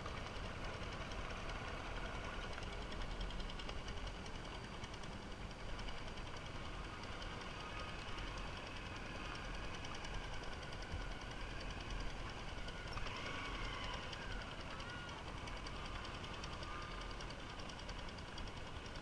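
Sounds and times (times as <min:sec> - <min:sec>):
small motorbike engine running: 0:00.0 - 0:19.0.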